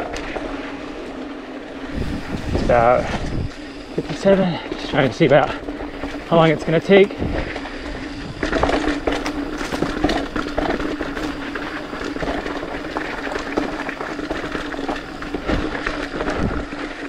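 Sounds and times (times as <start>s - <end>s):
bike tyres on dirt trail: 0.0s - 17.0s
steady hum: 0.0s - 17.0s
bike knocks and rattles: 1.9s - 17.0s.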